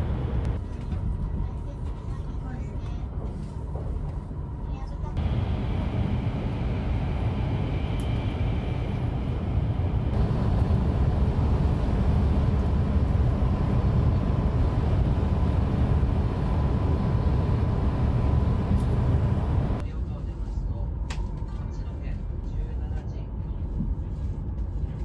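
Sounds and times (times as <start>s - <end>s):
train cabin rumble: 0.0s - 4.2s, 4.8s - 19.8s.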